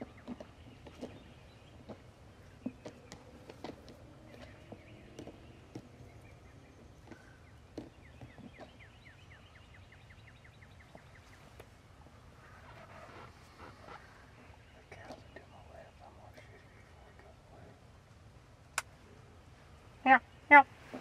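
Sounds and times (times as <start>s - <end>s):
songbird trill: 0.0s - 17.8s.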